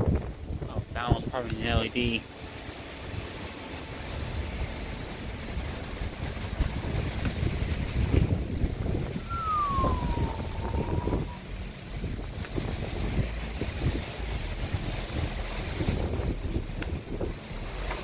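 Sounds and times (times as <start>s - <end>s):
hurricane wind gusting on microphone: 0.0s - 18.0s
thin whistle falling in pitch: 9.2s - 11.4s.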